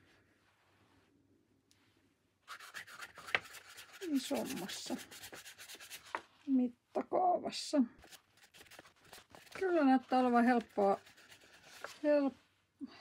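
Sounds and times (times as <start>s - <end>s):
paintbrush scrubbing on paper: 2.5s - 6.3s, 8.0s - 12.5s.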